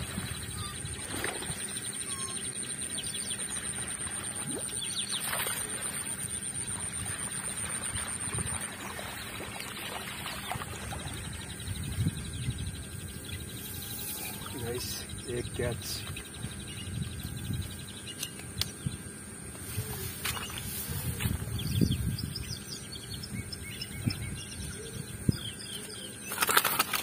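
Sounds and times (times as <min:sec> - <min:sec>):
faint bird chirps: 0:00.1 - 0:05.3
high-pitched drone: 0:11.3 - 0:16.0.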